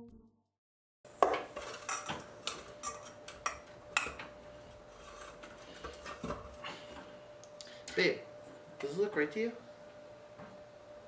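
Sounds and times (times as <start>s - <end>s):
faint steady hum: 1.1s - 11.0s
metal utensil scraping bowl: 1.5s - 2.2s.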